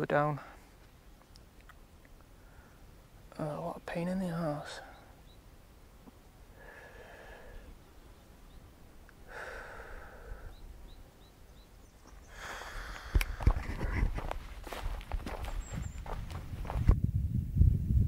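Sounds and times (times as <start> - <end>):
faint bird chirps: 1.0 - 9.1, 9.8 - 12.7, 15.4 - 16.2
short breaths: 6.5 - 7.8, 9.2 - 10.6, 12.2 - 13.6
footsteps on scrubby ground: 12.0 - 17.0.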